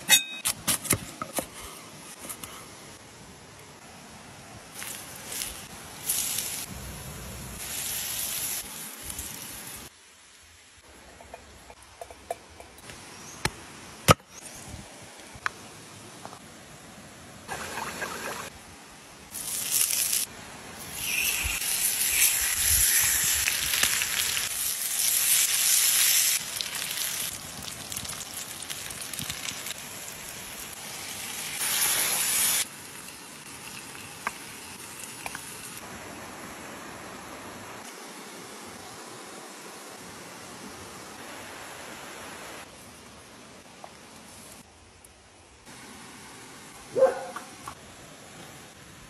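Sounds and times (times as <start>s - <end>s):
fish sizzling on hot stone: 4.8s - 9.9s, 19.3s - 35.8s.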